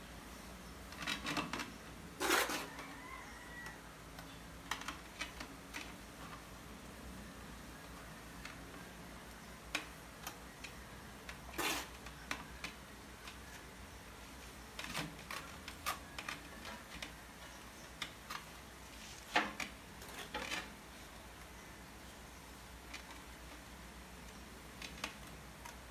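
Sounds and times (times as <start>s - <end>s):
trowel scraping on tiles: 2.2s - 2.7s, 11.5s - 12.1s.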